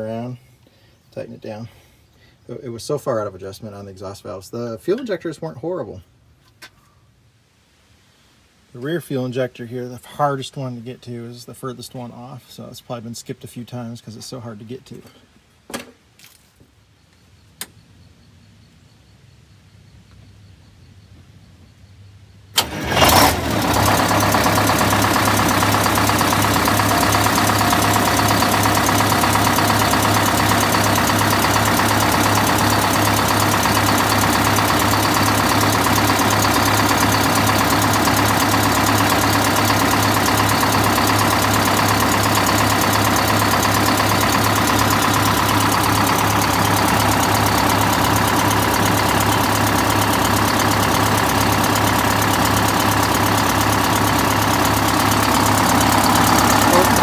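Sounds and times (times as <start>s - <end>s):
diesel bus engine idling: 22.5s - 57.0s.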